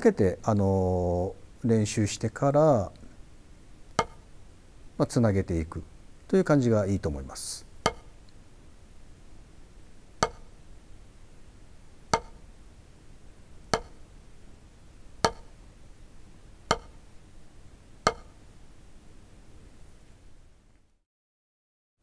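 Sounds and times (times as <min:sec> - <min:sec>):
drumstick tapping practice pad: 0:03.9 - 0:04.3, 0:07.8 - 0:08.2, 0:10.2 - 0:10.6, 0:12.1 - 0:12.5, 0:13.7 - 0:14.1, 0:15.2 - 0:15.6, 0:16.7 - 0:17.0, 0:18.0 - 0:18.4.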